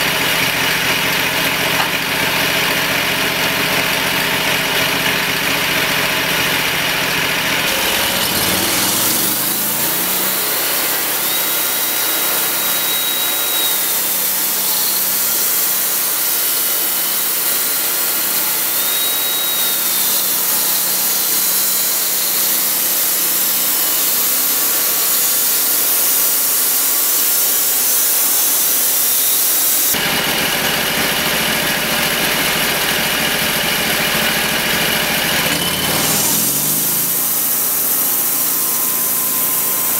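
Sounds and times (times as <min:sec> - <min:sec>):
engine running: 0:00.0 - 0:11.8, 0:29.9 - 0:39.9
band blade sawing log: 0:07.4 - 0:26.0, 0:34.8 - 0:39.9.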